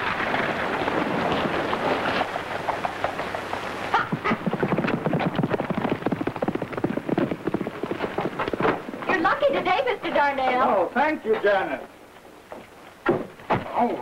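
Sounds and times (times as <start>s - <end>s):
horse hoofbeats on dirt: 0.0s - 10.6s.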